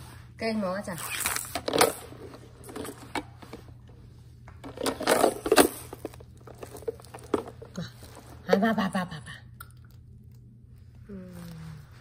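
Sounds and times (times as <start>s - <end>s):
small hard objects clattering: 4.7s - 8.3s.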